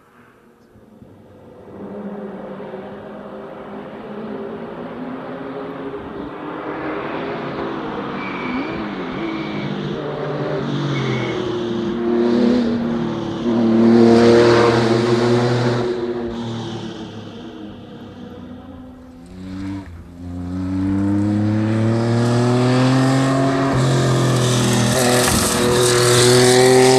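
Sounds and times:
rally car engine revving: 0:05.9 - 0:26.9.

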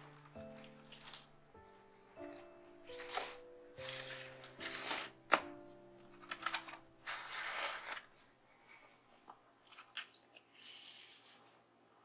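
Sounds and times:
soft background music: 0:00.0 - 0:08.0
paper and card rustling: 0:02.9 - 0:09.0.

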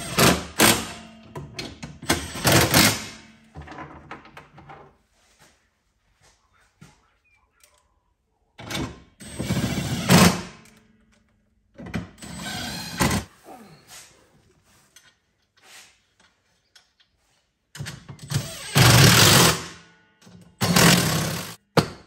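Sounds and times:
power driver driving screws: 0:12.2 - 0:13.2, 0:18.2 - 0:19.7, 0:20.6 - 0:21.6.

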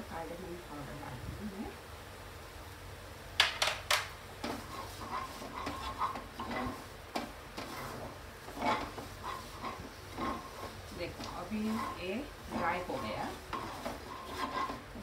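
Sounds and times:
spatula tapping a pan: 0:03.4 - 0:07.9, 0:08.5 - 0:14.8
spatula scraping a frying pan: 0:04.4 - 0:15.0.

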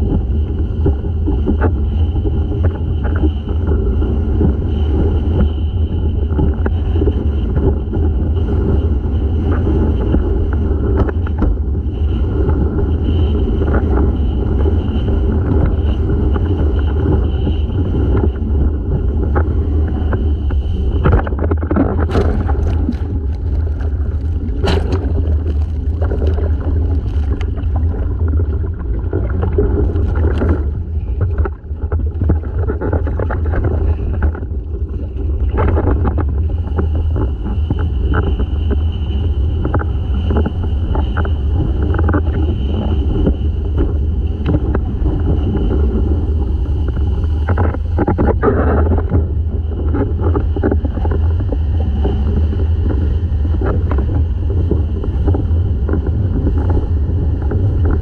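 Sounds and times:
steady high whine: 0:00.0 - 0:58.0
wind rumble on microphone: 0:00.0 - 0:58.0
board slapping on waves: 0:19.2 - 0:34.5.

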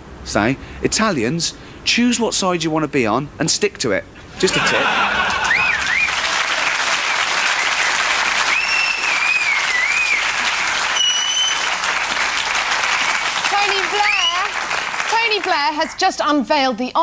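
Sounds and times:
audience applauding: 0:04.5 - 0:16.2
high wavering whistles: 0:05.4 - 0:06.2, 0:07.4 - 0:11.8, 0:12.9 - 0:14.5.

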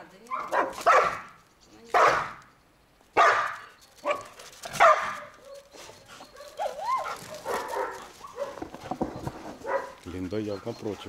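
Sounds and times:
dog barking sharply: 0:00.3 - 0:01.3, 0:02.0 - 0:02.4, 0:03.2 - 0:04.2, 0:04.8 - 0:05.2, 0:07.3 - 0:08.6, 0:09.6 - 0:10.0
dog whining: 0:05.4 - 0:10.0.

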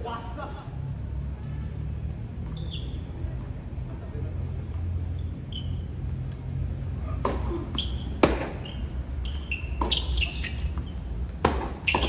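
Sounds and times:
tennis ball struck by rackets: 0:07.2 - 0:08.6, 0:11.4 - 0:12.0
tennis ball bouncing on court: 0:07.2 - 0:08.8, 0:09.4 - 0:12.0.

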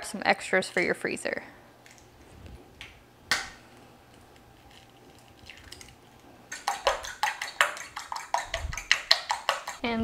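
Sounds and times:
egg cracked on countertop: 0:02.8 - 0:03.6
fork beating eggs in bowl: 0:04.6 - 0:09.9.

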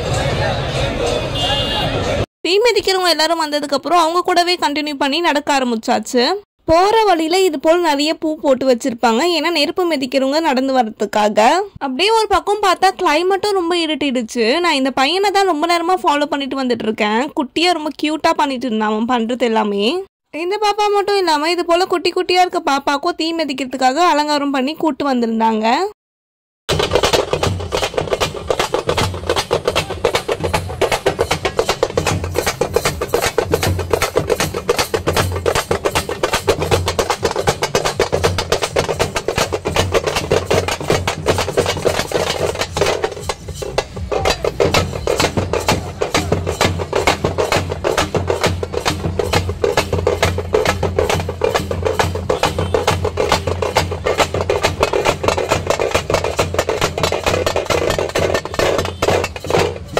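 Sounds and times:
frame drums beaten fast: 0:26.7 - 0:59.9.

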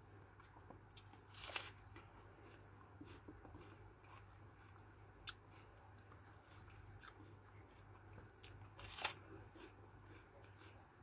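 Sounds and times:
low steady hum: 0:00.0 - 0:11.0
person chewing crunchy fruit: 0:00.3 - 0:11.0.

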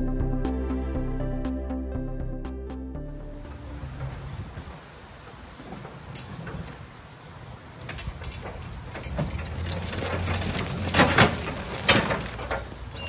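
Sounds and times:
tyres rolling rumble: 0:03.3 - 0:13.0
metal ramps rattling and clanking: 0:07.8 - 0:12.8.

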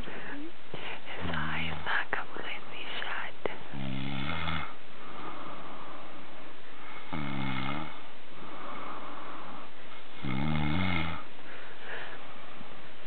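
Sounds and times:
person snoring: 0:03.7 - 0:05.7, 0:06.8 - 0:11.3.

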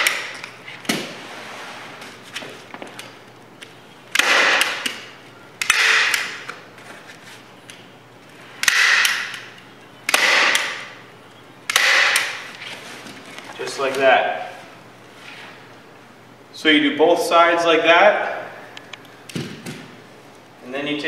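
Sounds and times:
staple gun snapping: 0:05.6 - 0:06.6.

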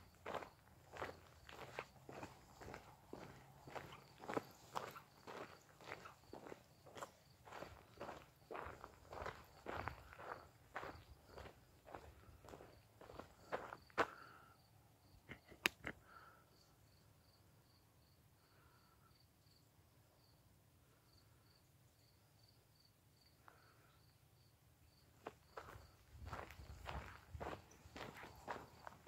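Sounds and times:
footsteps: 0:00.0 - 0:14.2, 0:25.2 - 0:29.0
cricket chirping faintly: 0:00.0 - 0:29.0.

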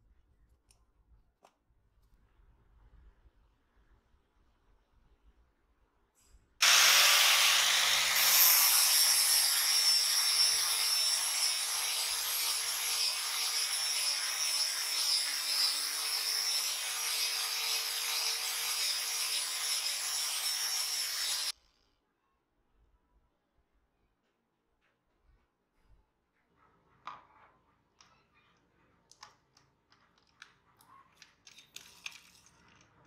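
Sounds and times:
angle grinder grinding wood: 0:06.6 - 0:21.5.

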